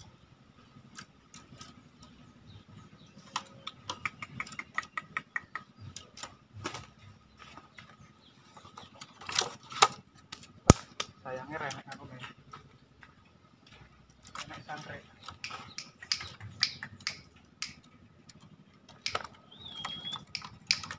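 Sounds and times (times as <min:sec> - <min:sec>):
bird chirping: 0:00.0 - 0:09.8, 0:10.6 - 0:20.9
handling clicks: 0:14.3 - 0:20.9.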